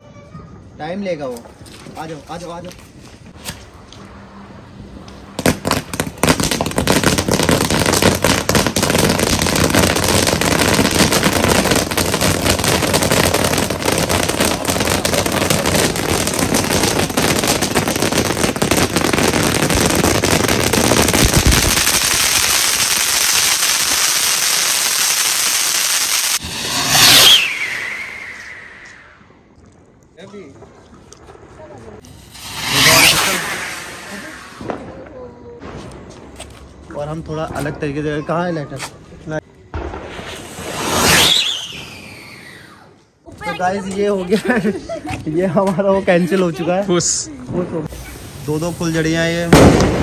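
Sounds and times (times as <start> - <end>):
firework fountain crackling: 0.8 - 38.7, 39.3 - 50.0
firework burst with falling whistle: 21.2 - 29.3, 32.0 - 34.9, 39.8 - 43.0, 47.9 - 50.0.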